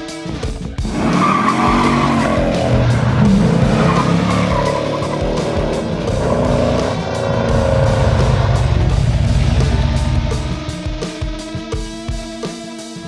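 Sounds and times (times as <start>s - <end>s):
car engine revving: 0.0s - 11.6s
outro music: 0.0s - 11.8s
tyres squealing: 0.8s - 8.5s.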